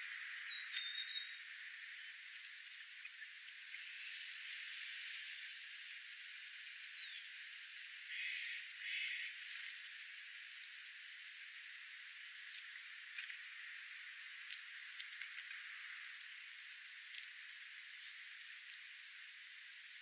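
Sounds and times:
faint steady hiss: 0.0s - 20.0s
jay calling: 8.1s - 9.4s
birds pecking at birdseed: 11.4s - 18.2s.

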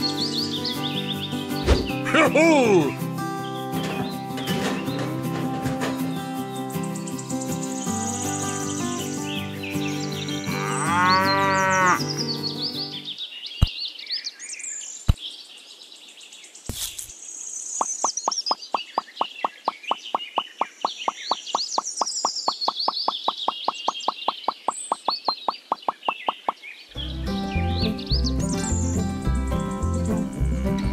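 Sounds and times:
light background music: 0.0s - 13.0s, 27.0s - 30.9s
birds chirping: 0.0s - 30.9s
cow mooing: 10.4s - 12.1s, 30.2s - 30.9s.

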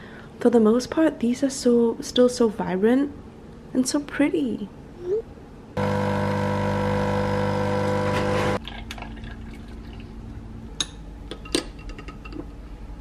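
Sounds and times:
coffee machine pump buzzing: 5.8s - 8.6s.

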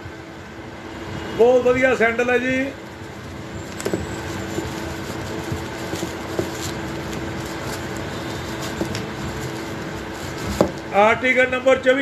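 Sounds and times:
steady hum with held tone: 0.0s - 1.4s
wrapping rustling: 2.7s - 11.0s.

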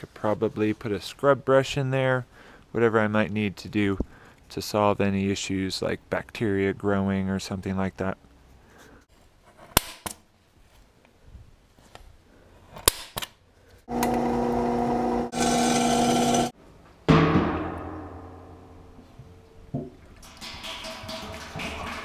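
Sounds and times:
drill press whining: 13.9s - 16.5s
metallic clang ringing: 17.2s - 21.0s.

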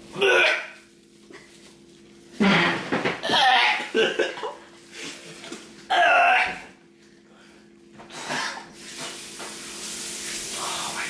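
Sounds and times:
steady hiss: 8.7s - 11.0s.

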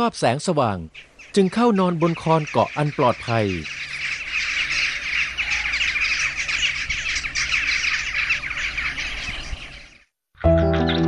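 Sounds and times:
jackdaws calling: 0.0s - 11.0s.

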